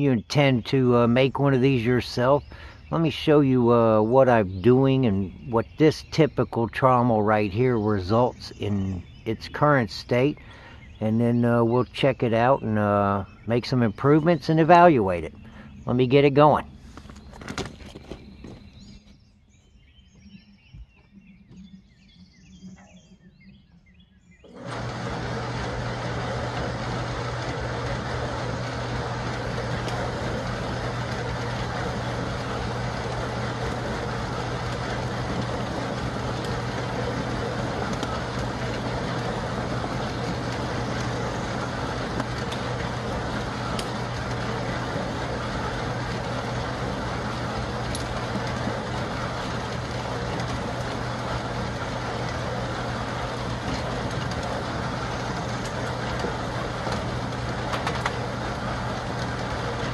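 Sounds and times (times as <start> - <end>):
motor hum: 0.0 - 59.9
compost tumbling in drum: 24.5 - 59.9.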